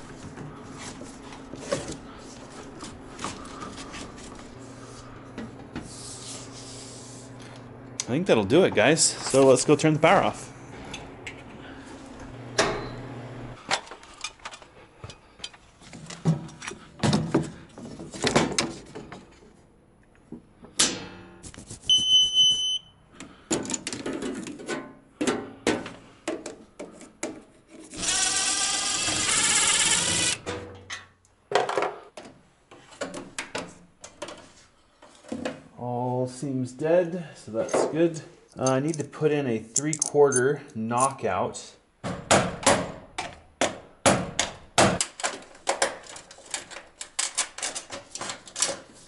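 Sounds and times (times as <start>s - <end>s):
voltage tester beep: 21.9s - 23.0s.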